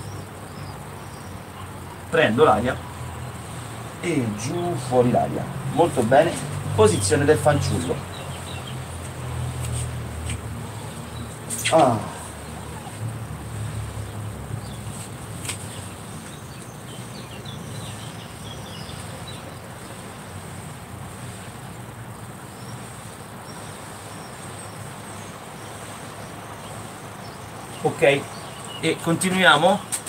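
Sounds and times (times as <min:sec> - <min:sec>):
distant traffic rumble: 0:00.0 - 0:30.0
faint bird chirps: 0:22.5 - 0:29.9.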